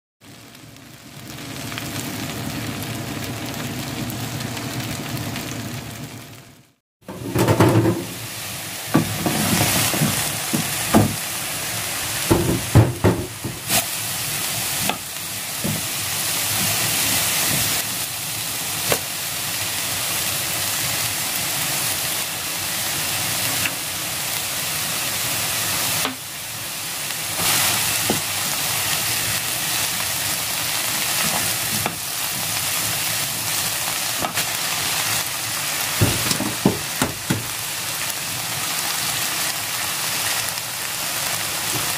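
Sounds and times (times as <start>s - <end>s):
vegetables sizzling in oil: 0.2s - 41.9s
knocks and scrapes on pan: 7.1s - 8.2s, 12.3s - 13.7s.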